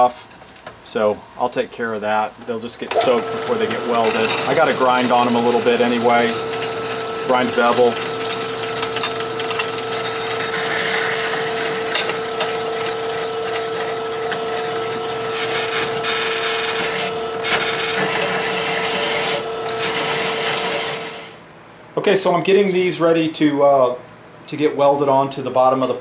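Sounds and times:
drill press humming: 0:02.9 - 0:21.4
hole saw scraping steel: 0:03.0 - 0:21.4.

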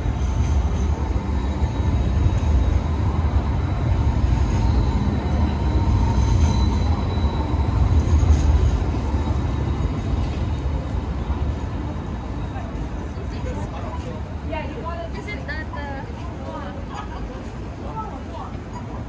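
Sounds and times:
tram rumbling past: 0:00.0 - 0:19.0
faint wheel squeal: 0:04.0 - 0:10.6.

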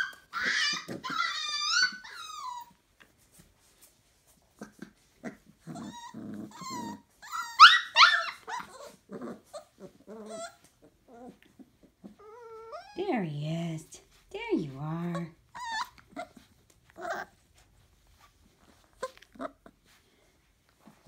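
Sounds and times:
puppy growls: 0:00.0 - 0:02.8, 0:04.5 - 0:13.0, 0:15.0 - 0:17.6, 0:18.6 - 0:19.9
puppy squeals: 0:00.0 - 0:02.8, 0:04.7 - 0:11.4, 0:12.0 - 0:13.0, 0:15.5 - 0:17.4
puppies whining and yipping: 0:00.0 - 0:02.9, 0:04.6 - 0:13.0, 0:15.4 - 0:20.2.

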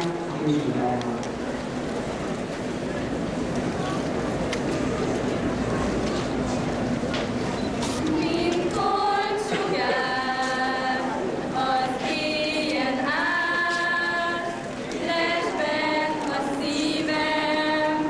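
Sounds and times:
girls singing unaccompanied: 0:08.0 - 0:18.0.

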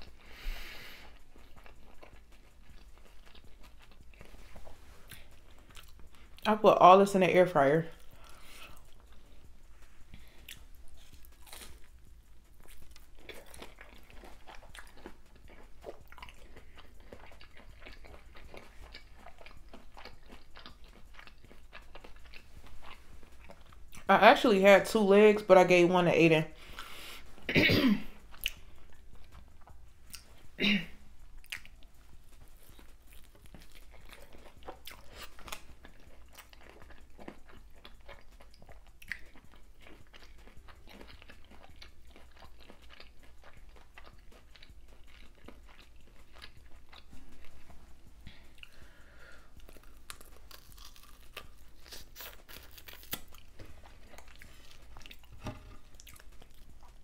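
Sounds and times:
person crunching crispy food: 0:00.0 - 0:06.5, 0:10.2 - 0:24.1, 0:32.6 - 0:47.4, 0:48.4 - 0:57.0.

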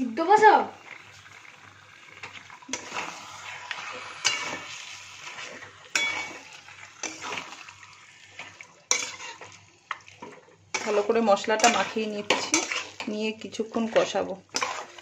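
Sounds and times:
spice paste sizzling: 0:00.0 - 0:15.0
metal spatula scraping pan: 0:02.1 - 0:07.7, 0:08.4 - 0:09.6, 0:10.2 - 0:15.0.

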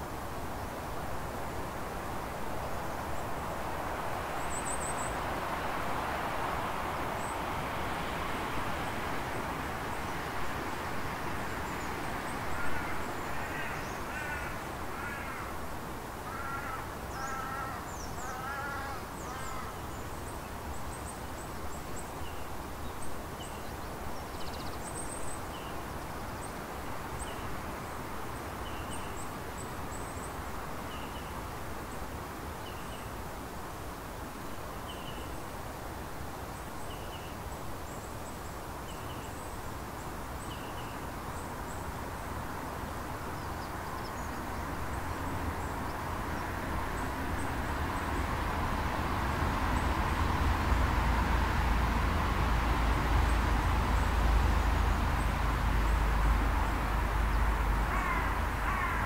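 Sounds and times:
outdoor background rush: 0:00.0 - 0:59.0
crow cawing: 0:12.6 - 0:15.6, 0:16.2 - 0:19.8, 0:57.8 - 0:59.0.

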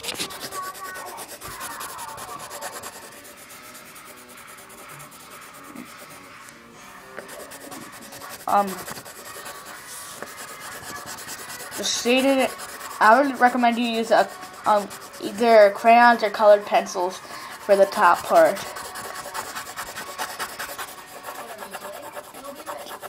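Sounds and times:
colored pencil scratching on paper: 0:00.0 - 0:23.0.

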